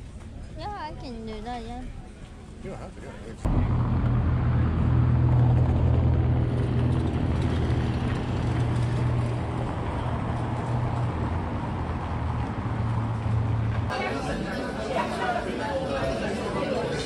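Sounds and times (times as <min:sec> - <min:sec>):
street traffic: 0:00.0 - 0:17.0
vehicle engine running: 0:03.5 - 0:13.9.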